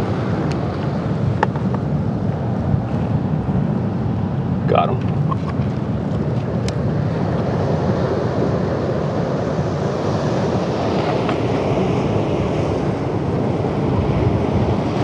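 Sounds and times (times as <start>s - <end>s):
ocean surf: 0.0s - 15.0s
wind rumble on microphone: 0.0s - 15.0s.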